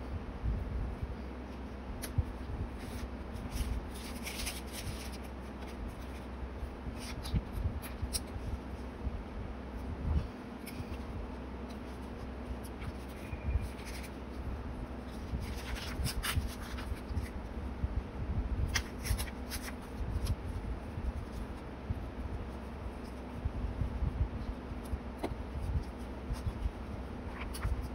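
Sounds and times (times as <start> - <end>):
low room hum: 0.0 - 27.9
paper rustling: 2.0 - 8.8, 10.6 - 17.5, 18.7 - 21.6, 24.8 - 27.9.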